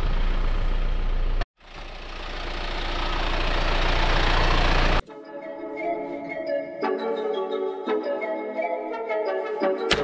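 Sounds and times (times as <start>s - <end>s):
tyre and road noise: 0.0s - 5.0s
truck engine and road noise: 0.0s - 5.1s.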